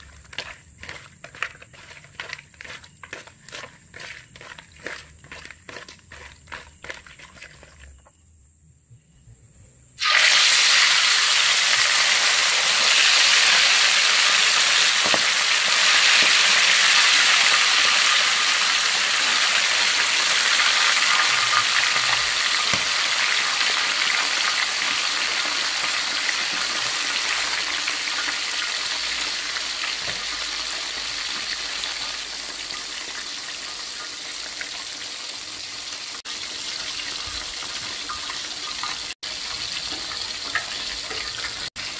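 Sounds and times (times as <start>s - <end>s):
fish sizzling in hot oil: 10.0s - 41.9s.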